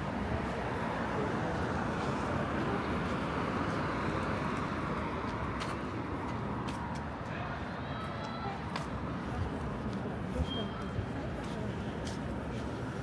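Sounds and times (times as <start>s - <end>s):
traffic noise: 0.0s - 13.0s.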